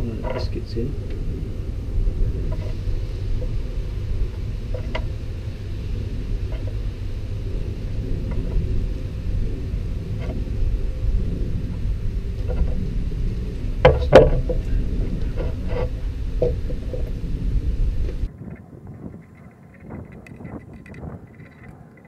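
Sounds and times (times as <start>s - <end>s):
steady low rumble: 0.0s - 22.0s
wooden blocks knocking: 13.8s - 14.7s, 16.4s - 17.1s.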